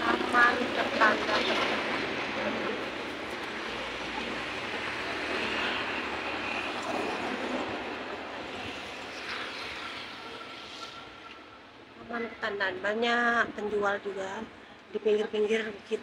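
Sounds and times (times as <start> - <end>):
road traffic passing: 0.0 - 16.0.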